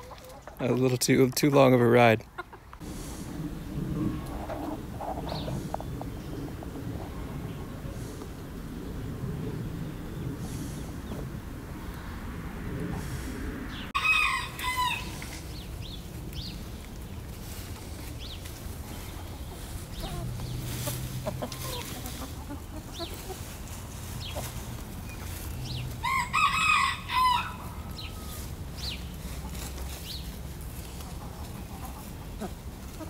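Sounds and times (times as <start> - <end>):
chickens clucking softly: 0.0 - 1.4, 2.2 - 2.8, 17.6 - 25.9, 30.8 - 33.0
chicken loud drawn-out call: 13.9 - 15.4, 25.8 - 28.4.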